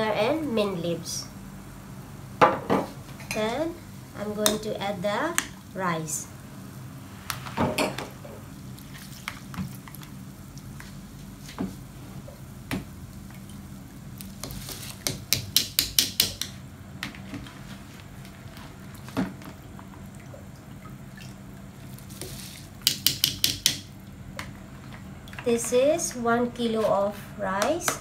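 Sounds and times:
steady low hum: 0.0 - 14.6
water dripping and splashing: 8.6 - 16.5, 18.2 - 25.8
metal strainer tapping: 22.9 - 23.8.

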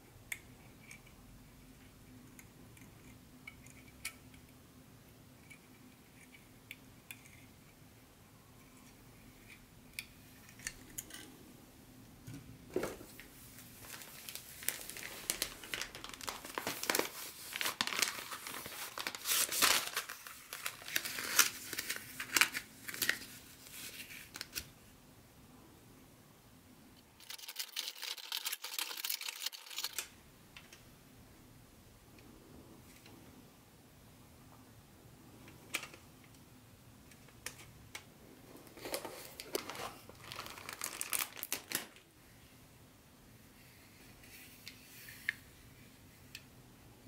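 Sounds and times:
paper packing material rustling: 12.8 - 24.7, 38.7 - 42.0.

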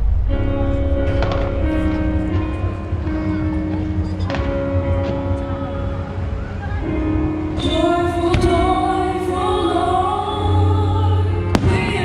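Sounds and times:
fireworks exploding: 0.0 - 4.6
music with singing: 0.0 - 12.0.

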